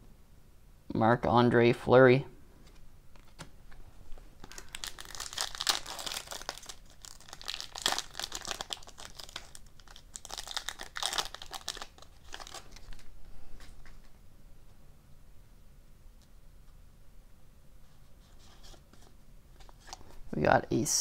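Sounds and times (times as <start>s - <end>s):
foil wrapper tearing and crinkling: 4.4s - 13.1s.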